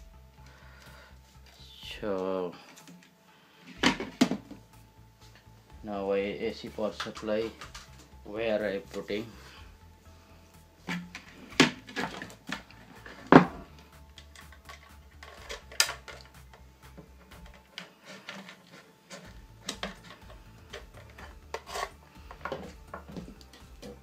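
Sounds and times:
plastic parts clicking on wood: 14.1 - 16.4, 17.3 - 24.0.

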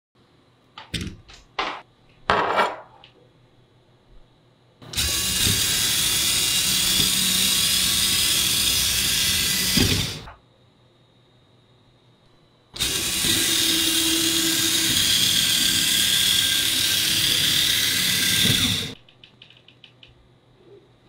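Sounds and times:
electric motor and gears whirring: 4.8 - 10.4, 12.7 - 19.0.

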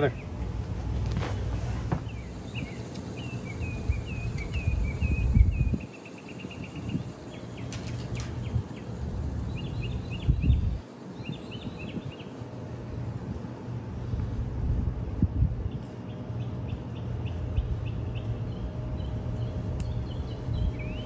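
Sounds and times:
small birds chirping: 2.0 - 12.9, 15.6 - 21.0.

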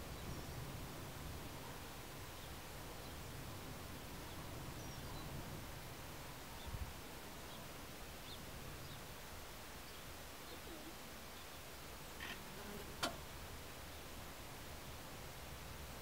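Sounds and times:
steady hiss: 0.0 - 16.0
sharp click: 13.0 - 13.2.

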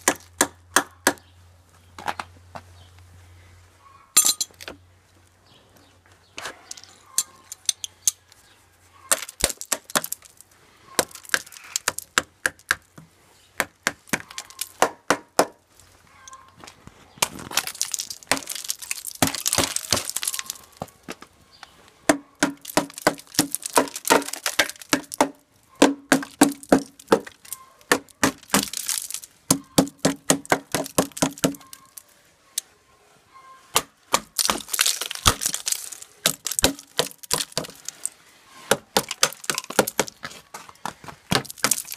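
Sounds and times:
metal tools tapping on ice: 4.2 - 4.7
ice cracking and clinking: 17.4 - 20.8, 22.6 - 25.2, 26.2 - 30.0, 34.3 - 38.1, 39.0 - 40.2, 41.3 - 41.9.

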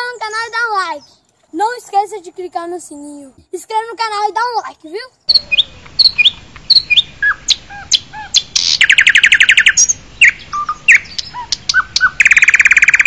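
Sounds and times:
birds chirping: 0.0 - 3.3, 4.1 - 13.0
bird trills: 5.2 - 13.0.

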